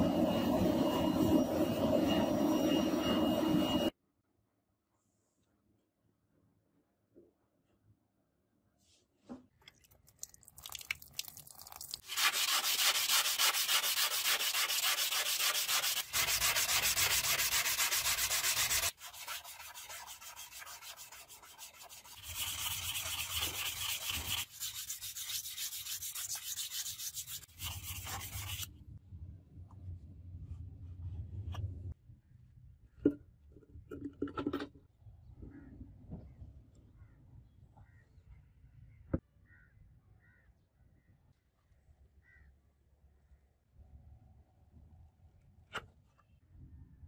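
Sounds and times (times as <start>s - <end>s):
sandpaper rubbing on steel: 12.0s - 28.7s.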